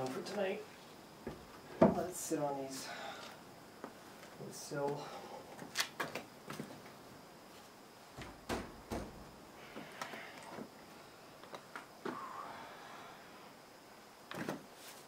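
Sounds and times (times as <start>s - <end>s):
heavy thuds: 8.2s - 9.4s.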